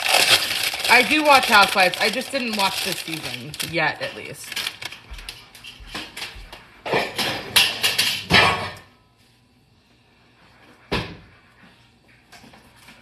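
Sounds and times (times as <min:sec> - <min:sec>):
kitchen rustling and clattering: 0:00.0 - 0:08.9.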